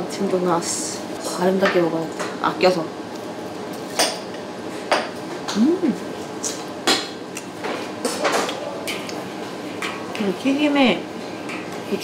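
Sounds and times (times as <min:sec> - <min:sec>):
person humming: 0:05.5 - 0:06.0.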